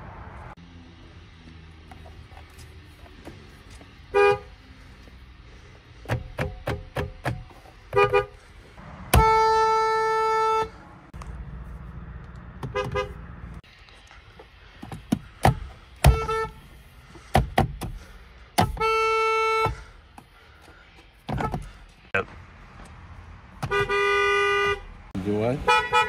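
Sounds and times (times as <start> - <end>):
car horn honking: 4.1 - 4.6, 7.9 - 8.4, 9.0 - 10.8, 12.6 - 13.4, 16.0 - 16.7, 18.6 - 20.0, 23.6 - 26.0.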